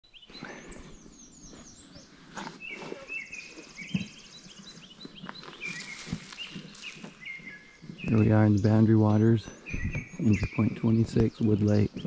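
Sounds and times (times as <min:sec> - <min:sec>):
songbirds singing: 0:00.0 - 0:12.0
soft low thumps: 0:06.1 - 0:11.3.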